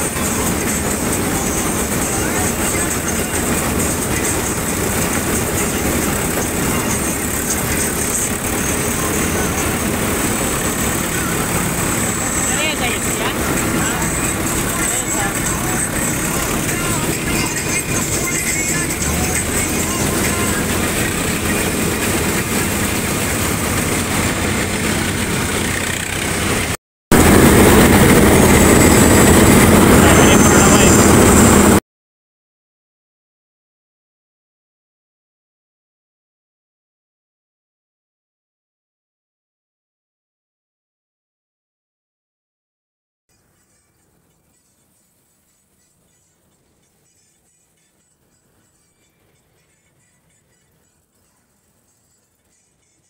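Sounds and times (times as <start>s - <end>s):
tractor diesel engine running: 0.0s - 31.8s.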